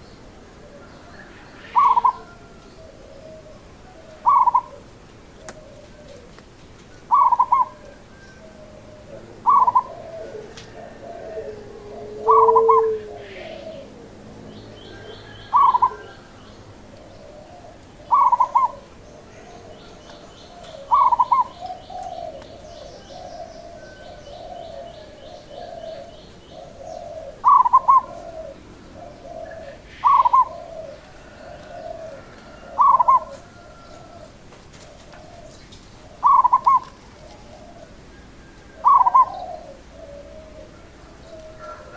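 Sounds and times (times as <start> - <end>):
dove cooing: 0.0 - 41.9.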